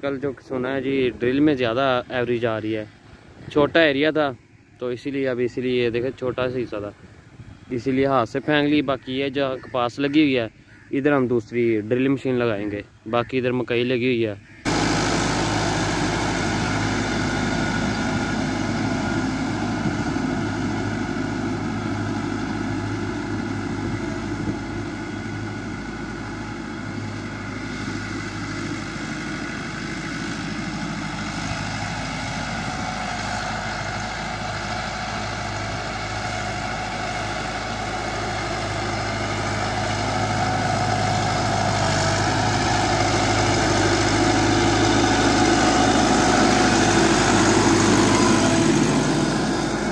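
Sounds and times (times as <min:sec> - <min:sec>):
tractor diesel engine under load: 0:00.0 - 0:49.9.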